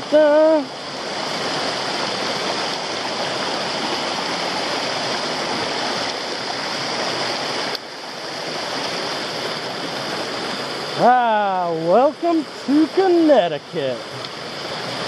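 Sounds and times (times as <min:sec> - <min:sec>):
mountain stream rushing over boulders: 0:00.0 - 0:15.0.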